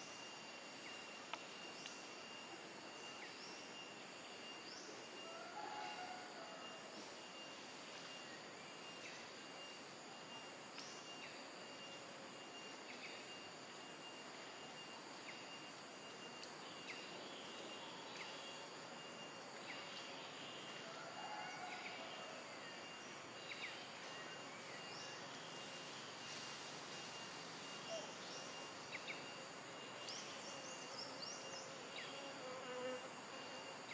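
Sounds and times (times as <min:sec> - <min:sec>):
even hiss: 0:25.6 - 0:29.1.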